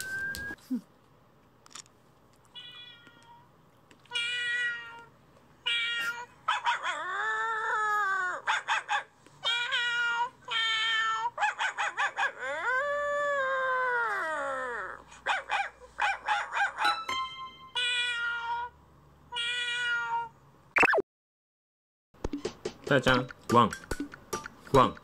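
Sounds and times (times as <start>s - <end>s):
recorded cat meows: 2.5s - 3.5s, 4.1s - 6.4s, 19.3s - 20.4s.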